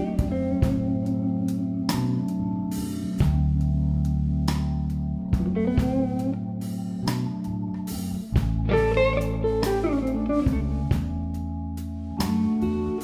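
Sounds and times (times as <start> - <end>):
electric guitar solo with bent notes: 0.0 - 1.9, 8.6 - 10.8
bass guitar: 0.0 - 13.0
keyboard: 0.0 - 13.0.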